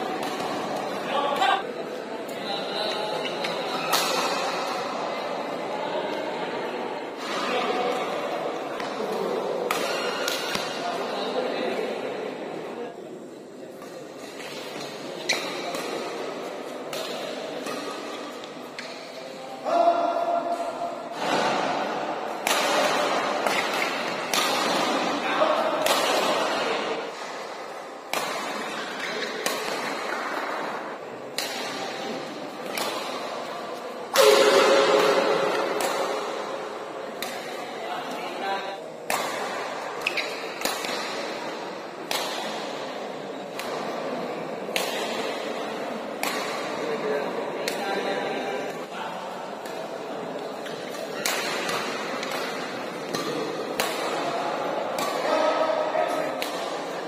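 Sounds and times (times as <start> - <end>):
badminton racket hitting shuttlecock: 31.3 - 37.6, 39.0 - 44.0, 44.7 - 46.9, 50.6 - 57.0.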